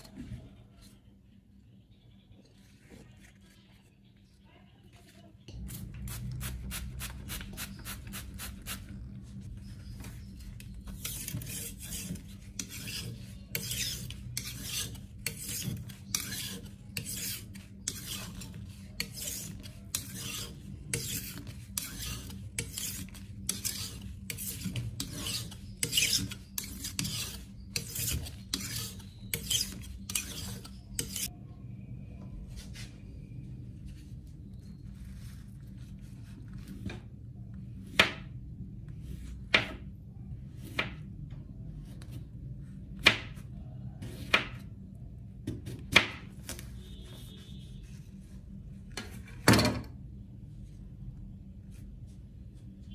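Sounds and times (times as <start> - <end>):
knife sharpened on stone: 11.0 - 31.3.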